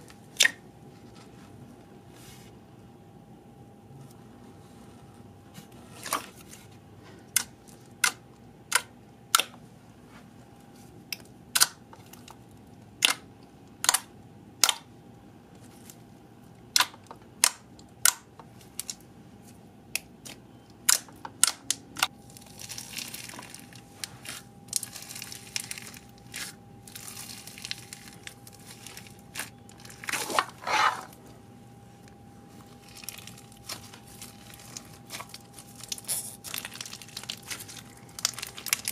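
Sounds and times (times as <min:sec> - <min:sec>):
slime squishing crunch: 0:16.7 - 0:31.4, 0:32.5 - 0:38.9
slime crackling when stretched: 0:32.8 - 0:38.9.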